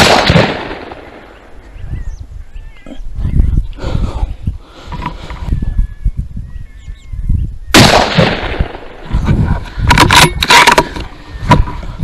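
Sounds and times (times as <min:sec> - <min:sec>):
rifle shot: 0:00.0 - 0:01.4, 0:07.7 - 0:09.0
wind rumble on microphone: 0:01.1 - 0:12.0.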